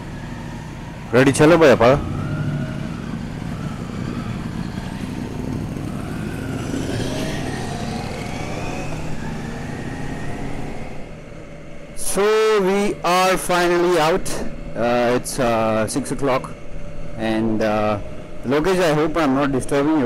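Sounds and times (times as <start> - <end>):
motorcycle engines pulling away: 0.0 - 11.2.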